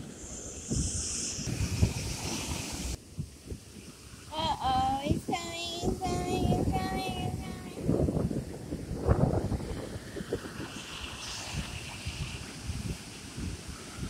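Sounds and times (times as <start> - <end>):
wind rumbling on microphone: 0.0 - 14.0
high voice singing with vibrato: 4.3 - 7.9.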